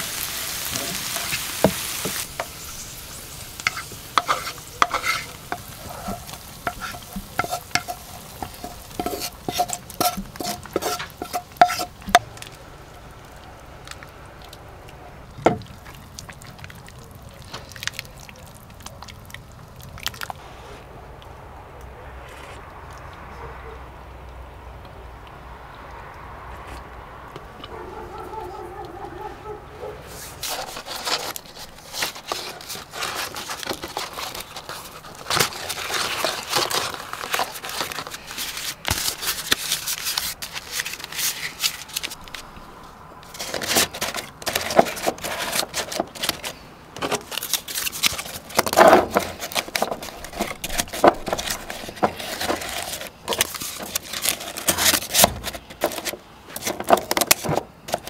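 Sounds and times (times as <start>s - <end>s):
paper crinkling and rustling: 30.1s - 42.6s, 43.2s - 58.0s.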